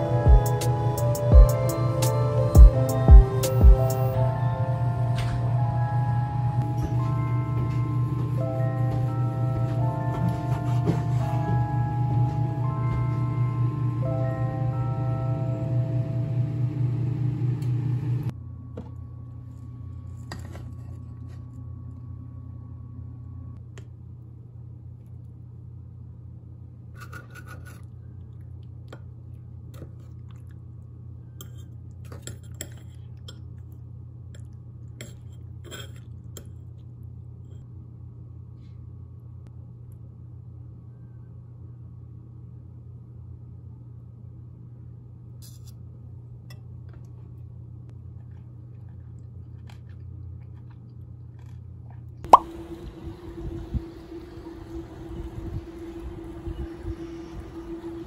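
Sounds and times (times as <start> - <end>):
background music: 0.0 - 16.0
steady low hum: 0.0 - 58.0
cutlery clinking on ceramic bowl: 31.4 - 33.4.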